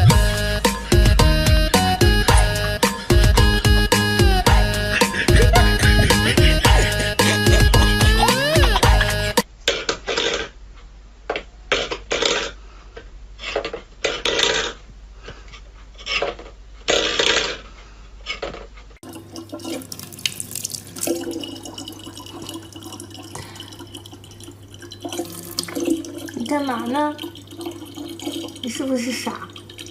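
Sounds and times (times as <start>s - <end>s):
tap water running into plastic bottle: 19.0s - 29.9s.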